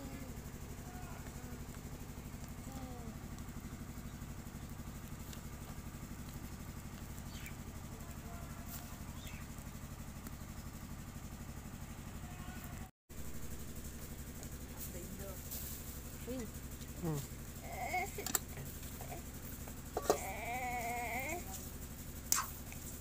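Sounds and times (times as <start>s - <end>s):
engine idling hum: 0.0s - 23.0s.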